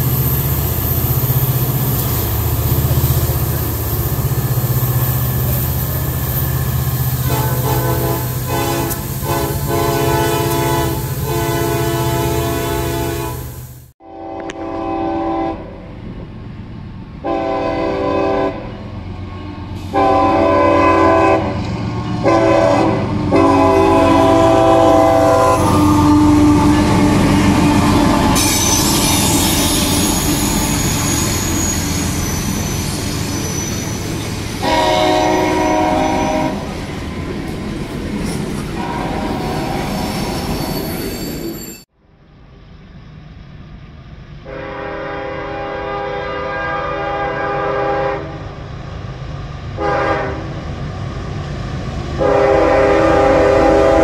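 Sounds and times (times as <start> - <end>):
train rumble and wheel noise: 0.0 - 54.0
locomotive horn: 7.2 - 15.8, 17.2 - 30.8, 34.6 - 36.8, 38.8 - 40.0, 44.4 - 48.6, 49.8 - 50.6, 52.2 - 54.0.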